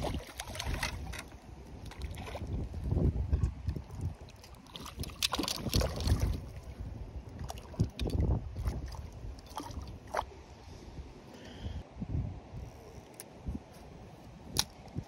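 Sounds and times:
handling knocks and splashy rustles: 0:00.0 - 0:06.8
wind rumbling on microphone: 0:00.0 - 0:15.0.

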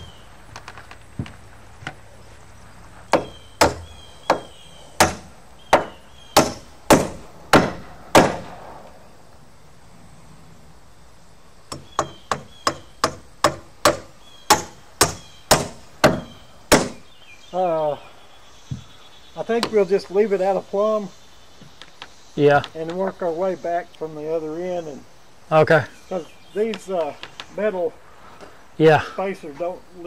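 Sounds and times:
hammer driving nails into wood: 0:03.1 - 0:08.5, 0:11.7 - 0:17.0.

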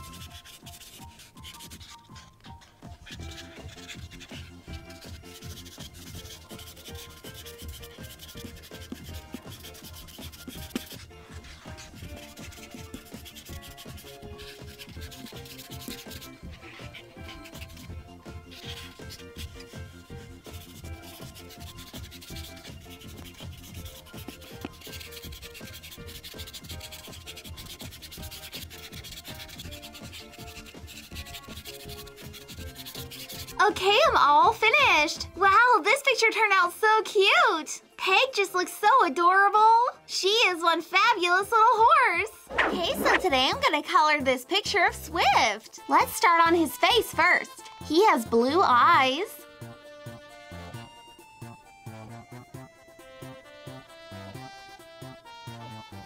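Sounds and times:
marker rubbing across paper: 0:00.0 - 0:34.9, 0:42.5 - 0:44.1.

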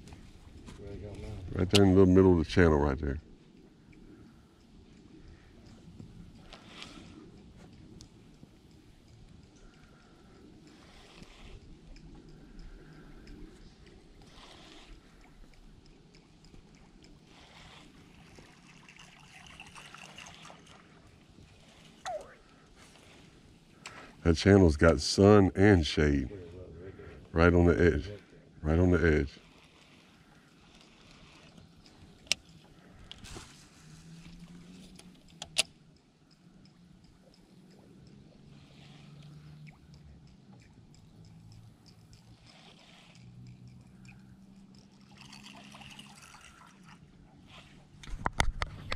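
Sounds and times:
water lapping around canoe: 0:03.2 - 0:24.2, 0:28.2 - 0:35.3, 0:36.1 - 0:48.9
fishing tackle rustling: 0:19.8 - 0:24.3, 0:26.3 - 0:48.9
fishing reel clicks: 0:34.1 - 0:47.1.

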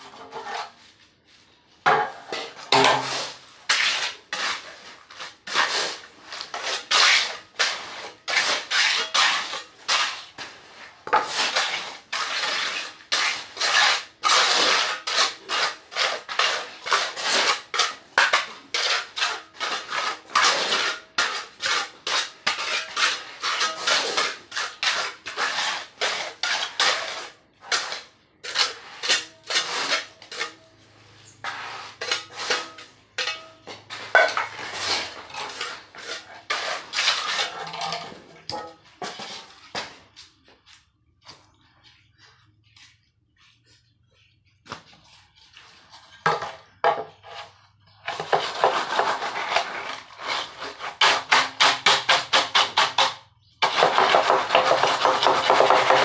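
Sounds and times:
trowel scraping mortar on concrete: 0:00.0 - 0:00.8, 0:01.9 - 0:39.9, 0:45.0 - 0:56.0.

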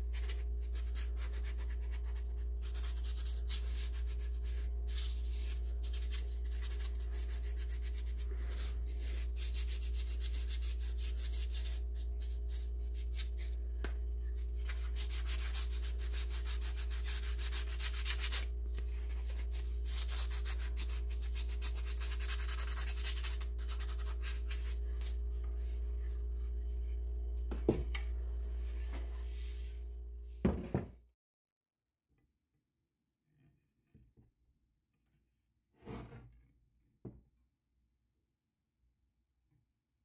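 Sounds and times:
steady low hum: 0:00.0 - 0:30.4
sandpaper rubbing on wood: 0:14.6 - 0:24.8
knock: 0:30.4 - 0:31.0.

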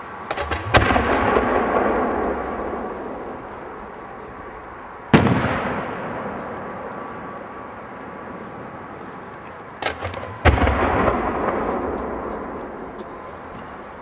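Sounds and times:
firework booms: 0:00.3 - 0:03.8, 0:05.1 - 0:06.9, 0:09.8 - 0:13.2
firework cracks: 0:00.3 - 0:04.2, 0:05.0 - 0:07.1, 0:09.8 - 0:13.5.

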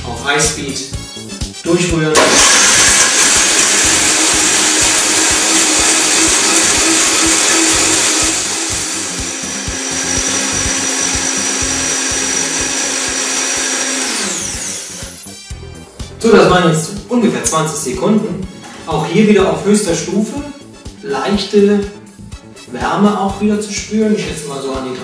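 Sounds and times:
blender motor whining: 0:02.2 - 0:15.4.

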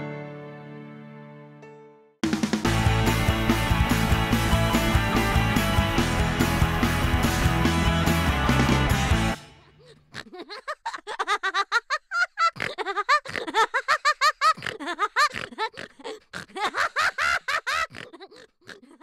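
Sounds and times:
person giggling: 0:09.6 - 0:19.0.

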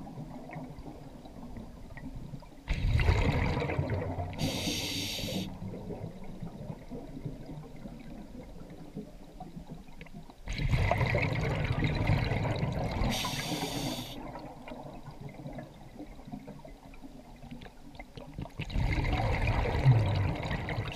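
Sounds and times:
exhaled bubbles rushing underwater: 0:00.0 - 0:20.9
breath hissing through regulator: 0:04.4 - 0:05.5, 0:13.0 - 0:14.2.

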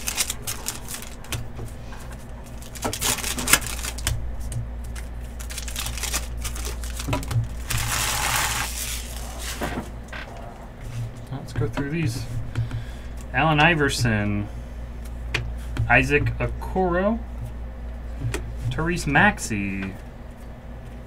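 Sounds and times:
foil wrappers crinkling: 0:00.0 - 0:09.8.

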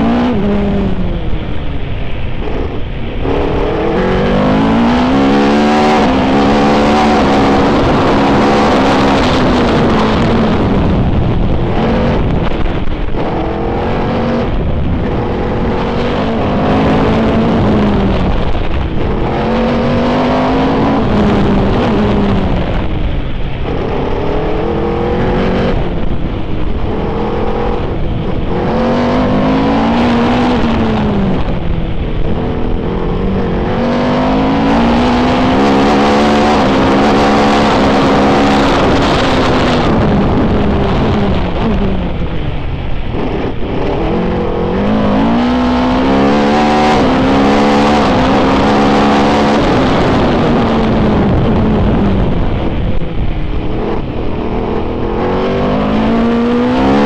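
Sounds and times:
racing car engine revving: 0:00.0 - 0:01.6, 0:02.3 - 0:57.0
wind and road noise: 0:00.0 - 0:57.0.

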